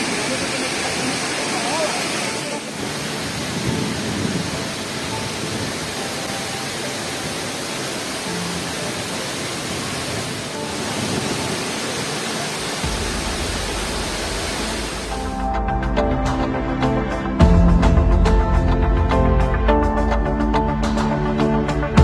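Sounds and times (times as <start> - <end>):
river water rushing over rocks: 0.0 - 15.6
background music bass: 12.8 - 22.0.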